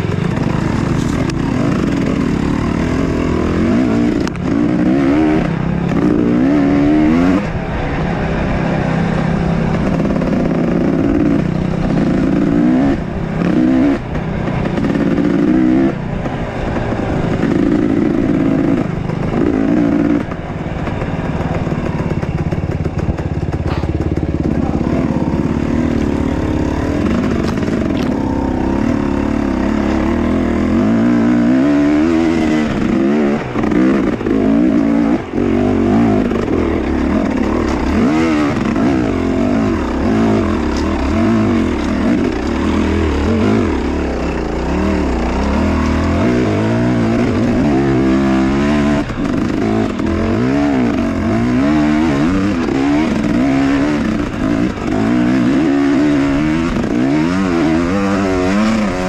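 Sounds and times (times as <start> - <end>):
motorcycle engine revving: 0.0 - 59.0.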